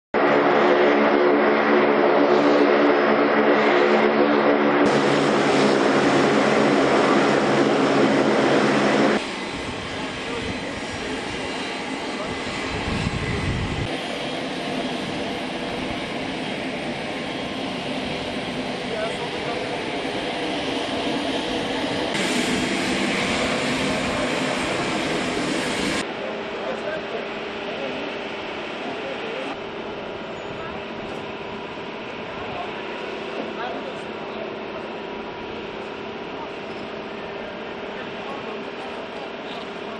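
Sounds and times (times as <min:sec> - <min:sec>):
rushing noise: 0:00.2 - 0:12.0, 0:12.6 - 0:26.1
turboprop aircraft engines droning: 0:00.2 - 0:39.9.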